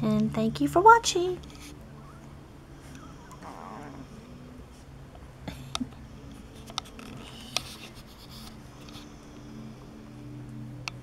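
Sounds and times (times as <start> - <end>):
steady low hum: 0.0 - 11.0
soft scratchy rustling: 6.2 - 9.6.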